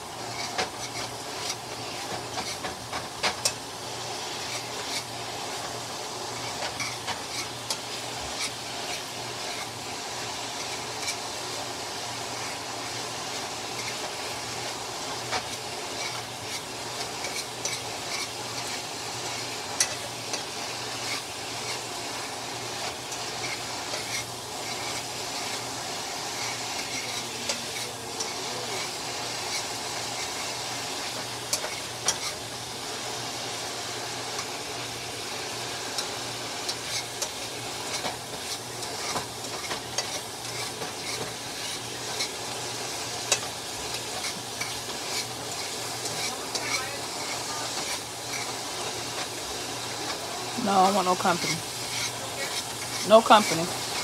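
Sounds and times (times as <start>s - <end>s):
chicken sizzling in frying pan: 0.0s - 54.0s
utensil scraping and clicking pan: 0.2s - 3.6s, 4.4s - 5.7s, 6.3s - 9.8s, 10.5s - 11.2s, 13.6s - 14.2s, 15.2s - 25.6s, 26.2s - 32.4s, 35.9s - 50.2s, 51.3s - 54.0s.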